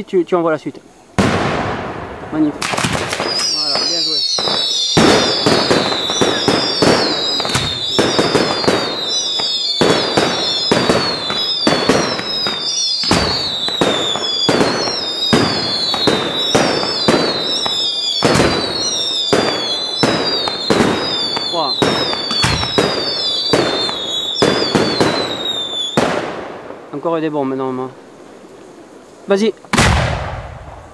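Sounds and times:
fireworks shells bursting: 1.2s - 26.7s
high wavering whistle: 3.1s - 26.0s.

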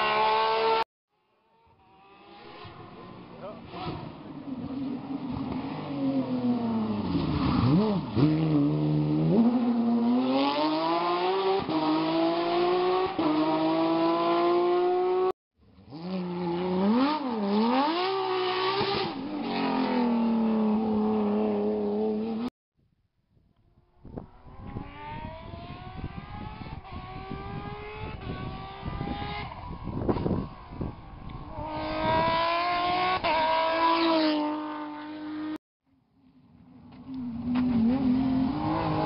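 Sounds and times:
racing car engine accelerating: 24.4s - 35.6s.

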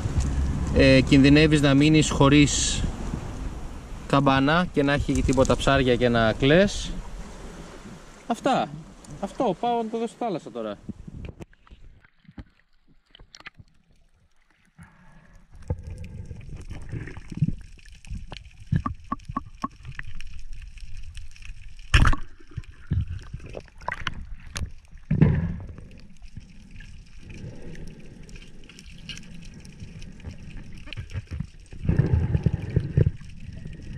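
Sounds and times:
underwater rush of moving water: 0.0s - 33.9s
small underwater clicks and crackles: 0.1s - 0.8s, 4.8s - 6.0s, 10.8s - 33.9s.

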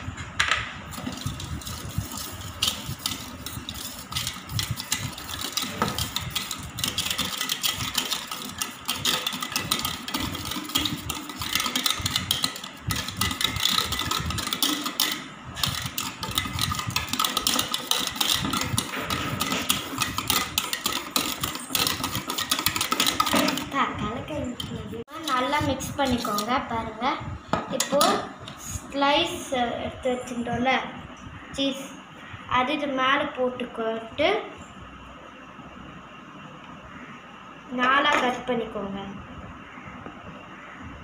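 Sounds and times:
wire whisk rattling in metal bowl: 0.9s - 26.6s, 27.7s - 28.2s.

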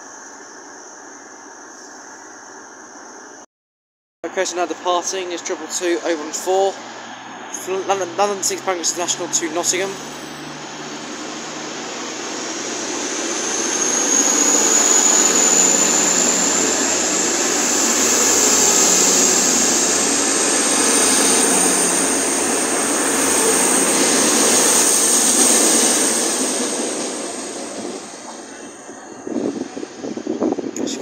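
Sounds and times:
high engine whine: 4.2s - 31.0s
diesel train accelerating past: 4.3s - 30.8s.

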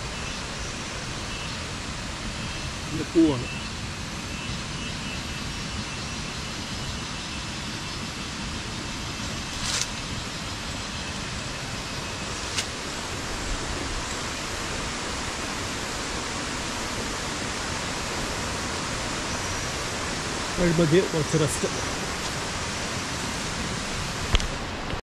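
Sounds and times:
stream running over stones: 9.4s - 25.0s.

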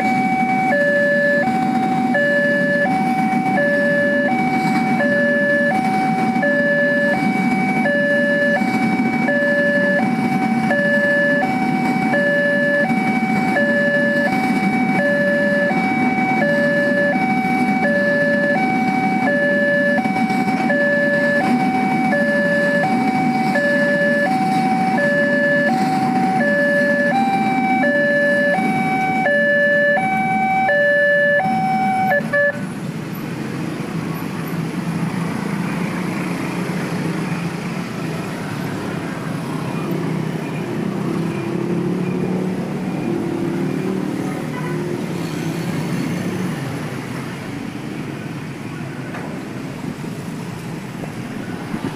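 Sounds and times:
freight train rumbling: 0.0s - 29.4s, 32.1s - 51.9s
two-tone crossing alarm: 0.0s - 32.7s
motorcycles and cars moving off: 0.0s - 51.9s.

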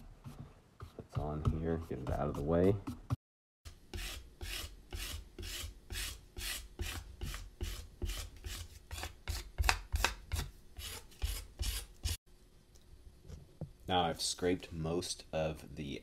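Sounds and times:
scraper scraping clay: 3.9s - 12.2s.

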